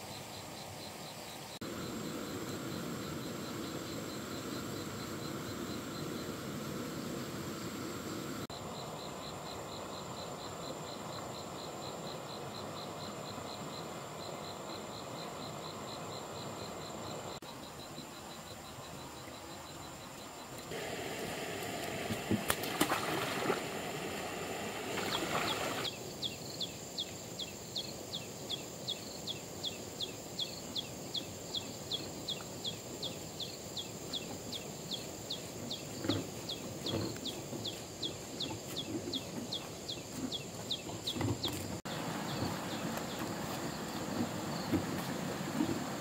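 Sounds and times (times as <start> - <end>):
high insect whine: 0.0 - 46.0
rustling splashy noise: 20.8 - 25.9.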